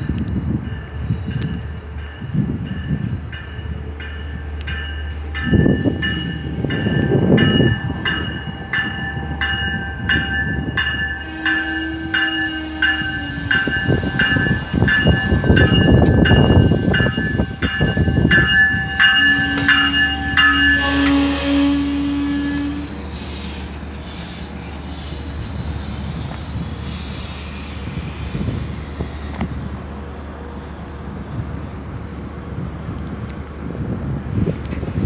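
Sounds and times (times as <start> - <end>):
train rumbling past: 0.0 - 35.0
warning bell ringing: 3.6 - 21.5.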